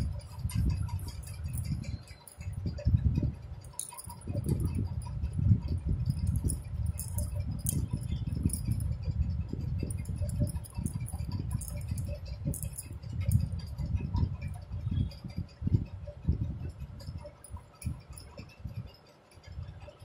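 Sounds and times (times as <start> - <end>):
crochet hook clicks and yarn rustles: 0.0 - 14.6.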